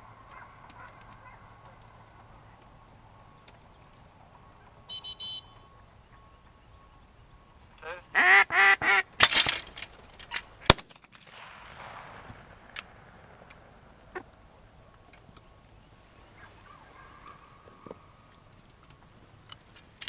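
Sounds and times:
duck quacking loudly: 7.8s - 9.1s
sharp cracks: 8.8s - 15.3s.

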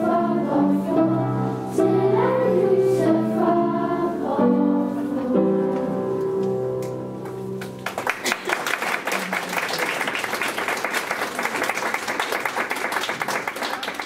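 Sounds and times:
girls' choir holding chord: 0.0s - 7.2s
audience clapping: 7.2s - 14.0s.

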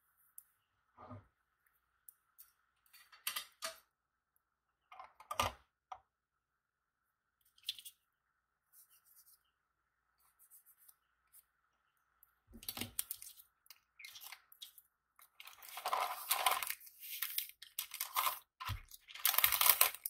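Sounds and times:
paper crinkling: 14.2s - 20.0s.

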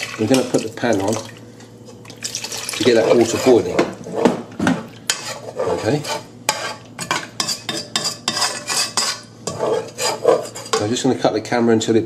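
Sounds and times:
ladle scraping metal pot: 2.5s - 4.4s, 5.1s - 10.9s.

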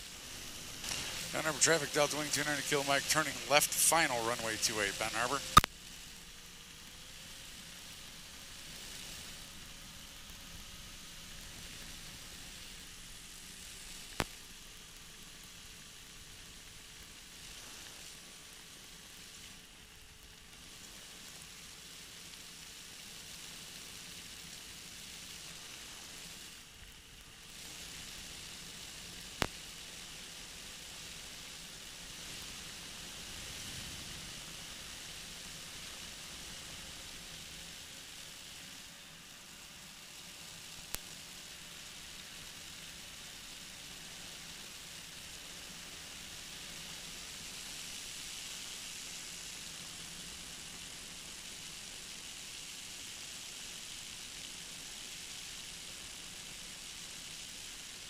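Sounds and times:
faint engine drone: 0.0s - 21.7s
steady cockpit hiss: 0.0s - 58.0s.

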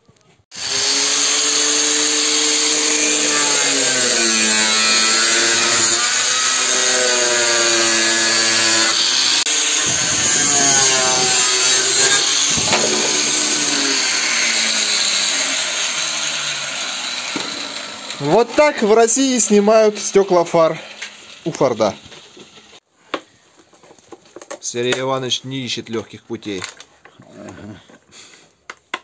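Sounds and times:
angle grinder cutting plastic: 0.5s - 22.8s.

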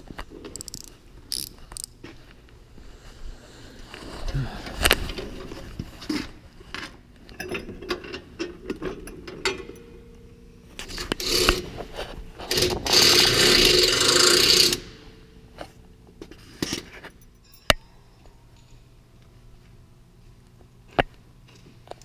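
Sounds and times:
pneumatic wrench: 10.8s - 11.7s, 12.5s - 15.1s
light metal clinks: 17.1s - 18.9s.

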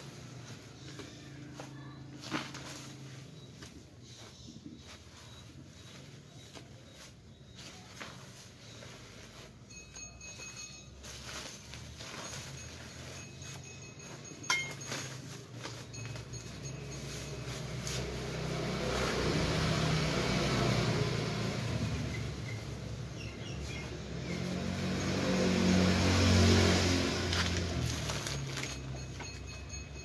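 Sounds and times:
passing vehicle engine hum: 8.3s - 30.0s
plastic bags crinkling: 27.3s - 29.5s.

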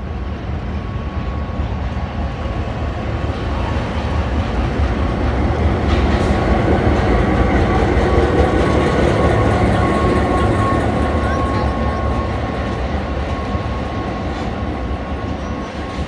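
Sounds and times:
diesel locomotive engine rumble: 0.0s - 16.0s
train rolling past: 0.0s - 16.0s.

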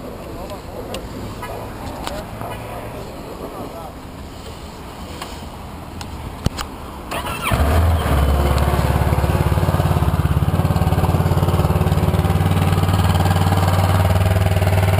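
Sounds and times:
starter motor whirring: 7.1s - 14.2s
motorcycle engine idling: 7.5s - 14.9s.

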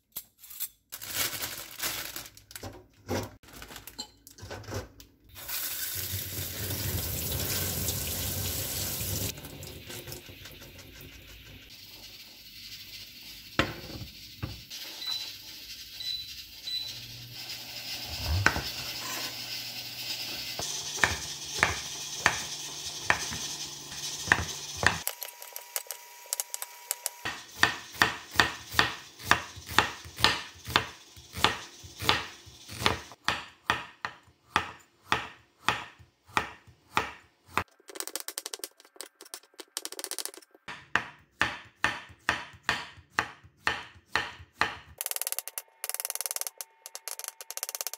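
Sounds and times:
water running into a sink: 5.3s - 14.7s, 17.4s - 25.0s.

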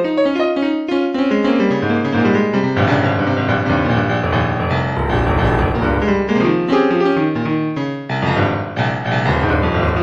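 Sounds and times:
instrumental background music: 0.0s - 10.0s
deep bass note: 2.8s - 6.4s.

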